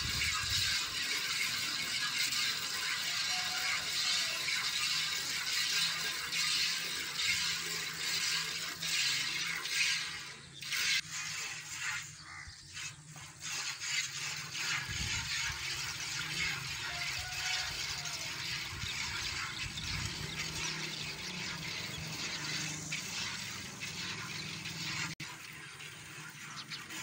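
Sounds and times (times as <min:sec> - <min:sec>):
milk squirting into bucket: 0:00.0 - 0:19.6.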